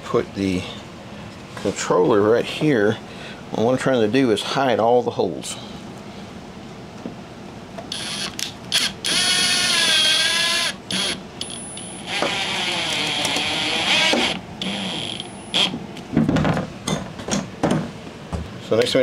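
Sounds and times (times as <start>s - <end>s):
cordless drill whining: 7.9s - 15.7s.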